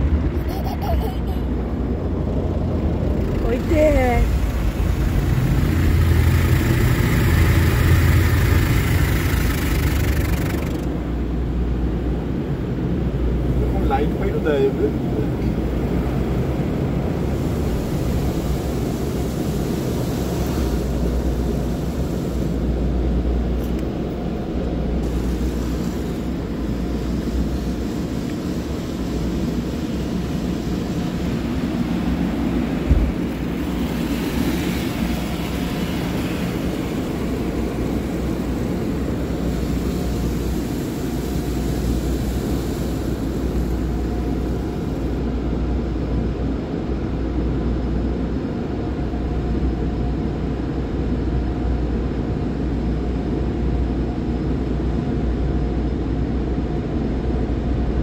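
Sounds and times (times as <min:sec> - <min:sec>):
car wash water spray and machinery: 0:00.0 - 0:58.0
thump: 0:32.9 - 0:33.1.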